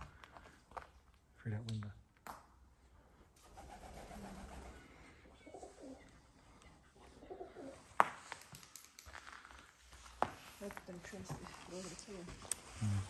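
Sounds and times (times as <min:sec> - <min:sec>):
pigeons cooing: 0:03.6 - 0:06.1, 0:07.0 - 0:07.8.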